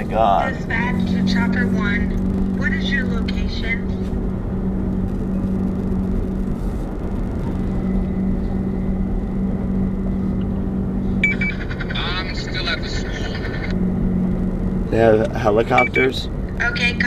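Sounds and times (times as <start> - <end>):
car engine drone and road rumble: 0.0 - 17.0
short high beep: 15.8 - 16.1.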